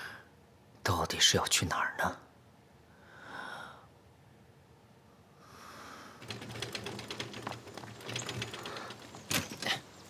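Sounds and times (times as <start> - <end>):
soft breath: 2.9 - 4.0, 5.1 - 6.4
rickshaw wheels crunching: 6.2 - 10.0.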